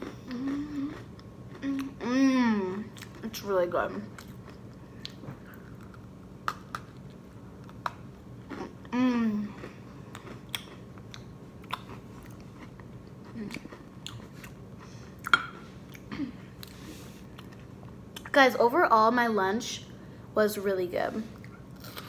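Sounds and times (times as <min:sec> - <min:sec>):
person chewing food: 0:00.0 - 0:03.3, 0:04.1 - 0:18.3
person humming: 0:01.6 - 0:02.9, 0:08.9 - 0:09.6.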